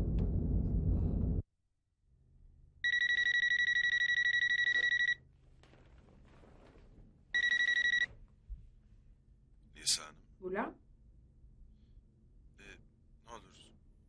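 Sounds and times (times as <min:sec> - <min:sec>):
telephone ringing: 0:02.8 - 0:05.2, 0:07.3 - 0:08.2.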